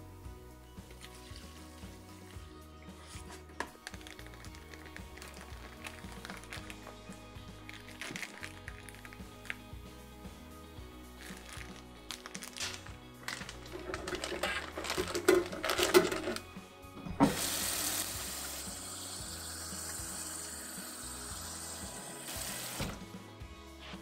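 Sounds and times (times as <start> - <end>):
plastic bag rustling: 3.2 - 6.9, 7.7 - 9.5, 11.2 - 16.4.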